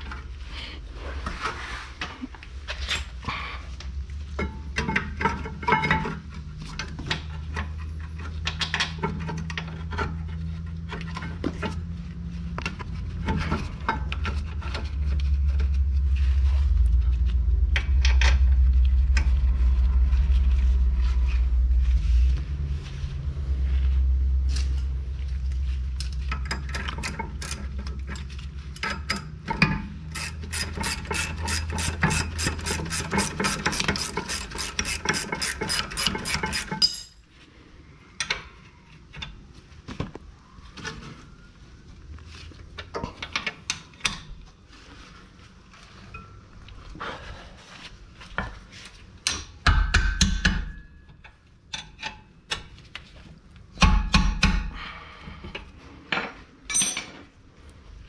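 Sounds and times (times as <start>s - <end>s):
low rumble: 9.4s - 28.8s.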